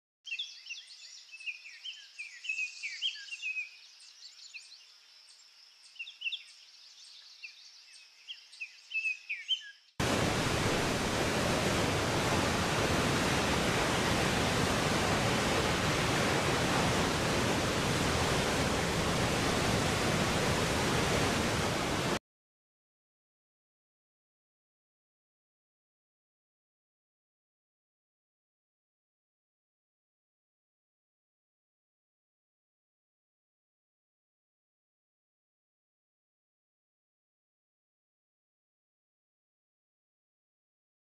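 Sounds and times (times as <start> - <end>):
roar of rushing water: 10.0 - 22.2.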